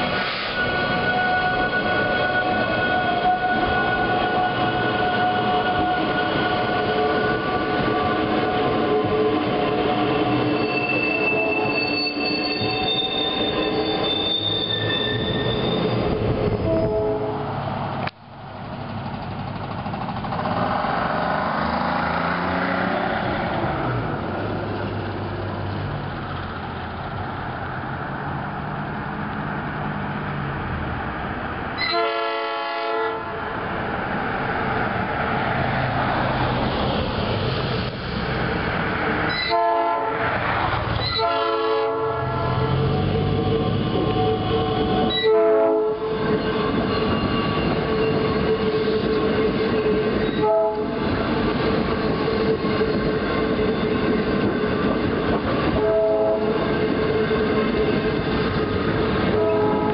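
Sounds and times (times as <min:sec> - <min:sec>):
electric train rumbling: 0:00.0 - 0:59.9
train horn blasts: 0:00.4 - 0:12.7, 0:16.6 - 0:17.6, 0:31.8 - 0:33.4, 0:39.3 - 0:40.3, 0:41.0 - 0:46.8, 0:50.4 - 0:51.0, 0:55.7 - 0:56.6, 0:59.3 - 0:59.9.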